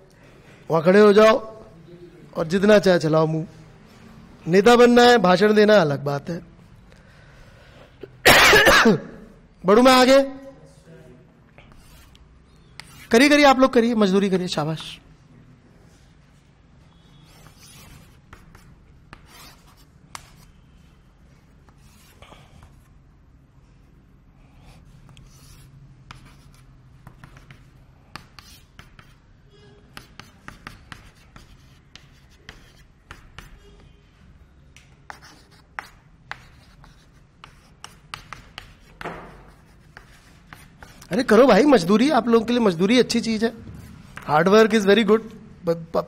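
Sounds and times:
faint low room hum: 0:00.0 - 0:46.0
chalk tapping and scratching: 0:11.6 - 0:13.4, 0:17.0 - 0:20.7, 0:21.4 - 0:23.0, 0:24.5 - 0:34.0, 0:34.8 - 0:41.9, 0:43.6 - 0:45.4.

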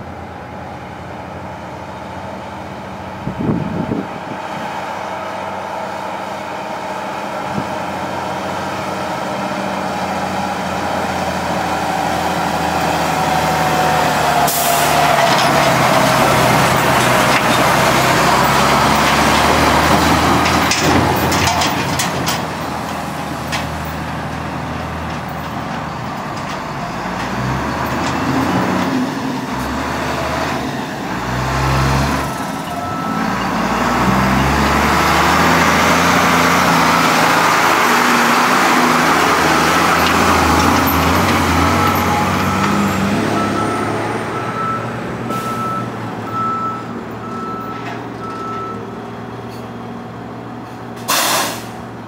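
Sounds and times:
heavy diesel engines running: 0:00.0 - 0:52.0
reversing alarm beeping: 0:32.3 - 0:34.6, 0:39.8 - 0:49.0
air brake hiss: 0:51.0 - 0:51.8.

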